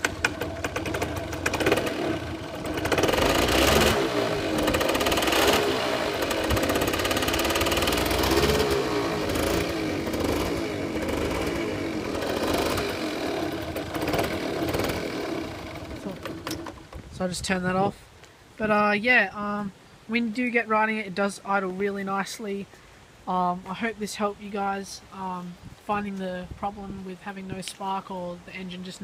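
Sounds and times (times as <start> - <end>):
moped engine revving: 0.0 - 17.0.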